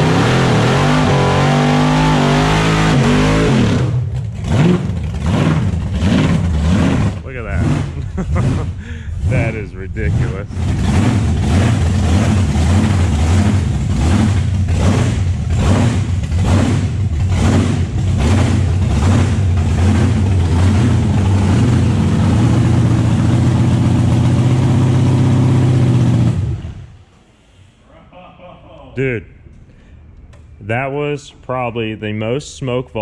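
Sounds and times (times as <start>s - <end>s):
loud lumpy vee eight engine idling: 4.1s - 26.6s.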